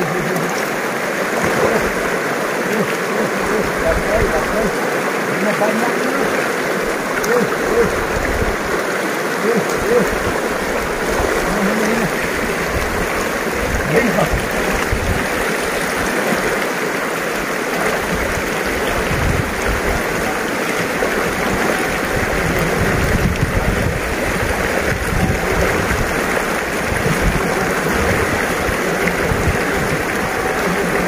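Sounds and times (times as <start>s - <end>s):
river rushing over rocks: 0.0s - 31.0s.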